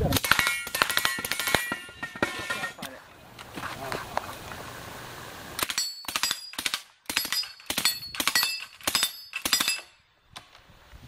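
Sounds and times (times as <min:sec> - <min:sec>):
steel plates ringing: 0:00.2 - 0:02.8, 0:07.2 - 0:10.0.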